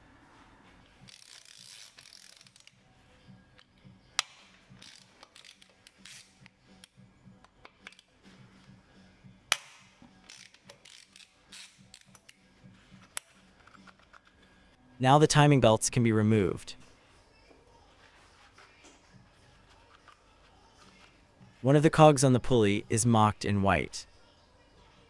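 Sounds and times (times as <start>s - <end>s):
ratchet wrench clicking: 1.1s - 2.8s, 4.2s - 6.4s, 10.2s - 12.4s.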